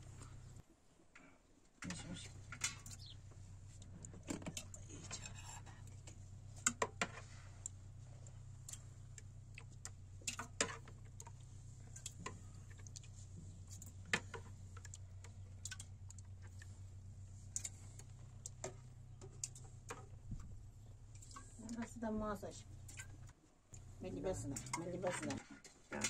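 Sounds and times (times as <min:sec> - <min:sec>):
steady low hum: 0:00.0 - 0:00.6, 0:01.8 - 0:26.0
light clicks and taps: 0:03.8 - 0:16.7, 0:17.4 - 0:20.5.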